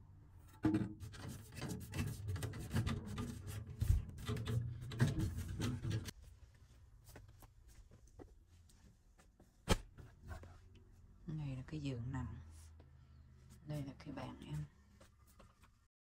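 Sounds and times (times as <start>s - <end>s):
handling noise rubbing and scraping: 0.4s - 6.4s, 9.6s - 10.8s.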